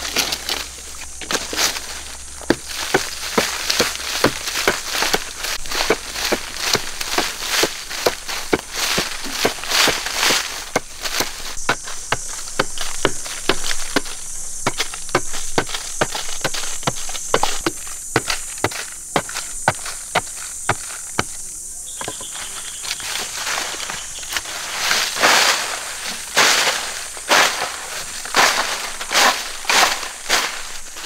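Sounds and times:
loose soil scraping and swishing: 0.0s - 21.1s, 22.4s - 31.0s
steady high hiss: 0.0s - 31.0s
hoe chopping into hard soil: 1.2s - 21.4s.

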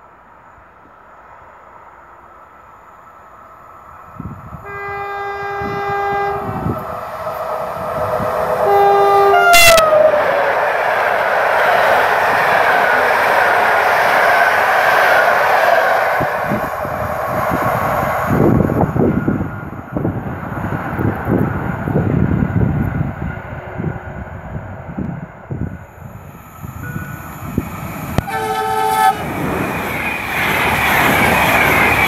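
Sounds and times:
train coaches rushing past: 3.4s - 32.0s
train two-tone horn: 4.6s - 6.8s, 8.6s - 10.3s, 28.2s - 29.5s.

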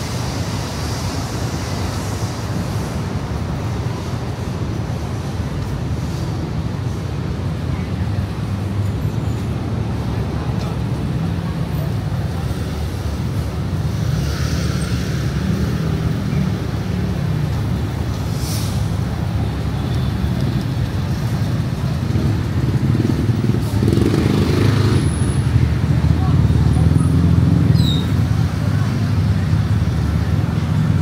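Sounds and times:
traffic rumble: 0.0s - 31.0s
brief hiss: 18.3s - 19.0s.

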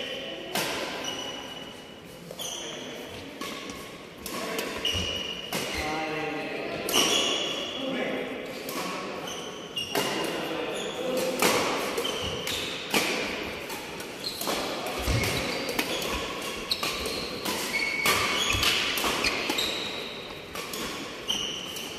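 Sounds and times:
shoe squeaks on court: 1.0s - 1.8s, 2.4s - 3.6s, 4.7s - 5.8s, 6.9s - 7.7s, 14.2s - 21.9s
racquets hitting shuttlecock: 11.1s - 21.9s.

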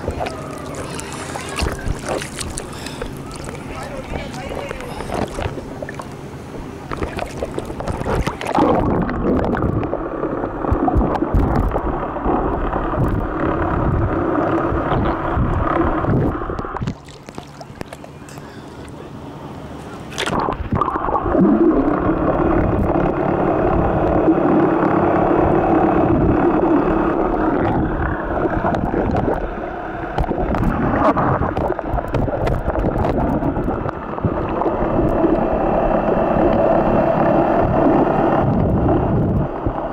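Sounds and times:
waves lapping: 0.0s - 11.1s, 14.4s - 20.9s
underwater sloshing and gurgling: 0.0s - 39.9s
steady low drone: 17.7s - 39.9s.

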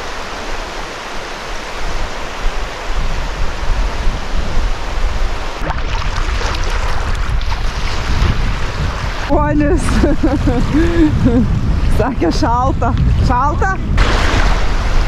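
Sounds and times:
water splashing around wading legs: 5.6s - 10.3s.

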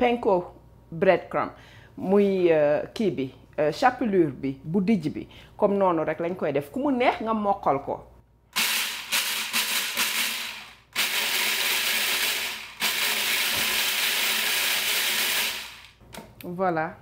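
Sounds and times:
food processor chopping: 8.6s - 16.0s.

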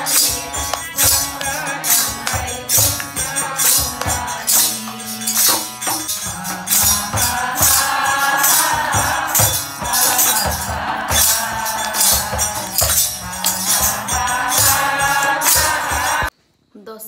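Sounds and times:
group singing into a microphone: 0.0s - 16.3s
hand drum: 0.0s - 16.3s
harmonium: 0.0s - 16.3s
jingling percussion: 0.0s - 16.3s.

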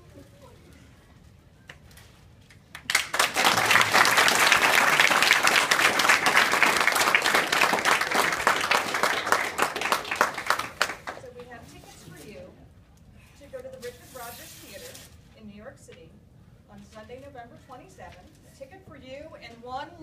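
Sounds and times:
group of people clapping: 2.7s - 11.5s.

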